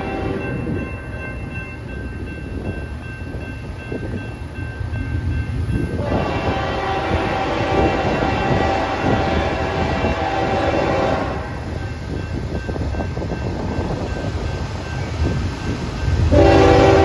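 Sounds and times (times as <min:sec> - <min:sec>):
locomotive horn long chord: 0:00.0 - 0:00.7, 0:06.0 - 0:11.6, 0:16.3 - 0:17.0
locomotive engines rumbling: 0:00.0 - 0:17.0.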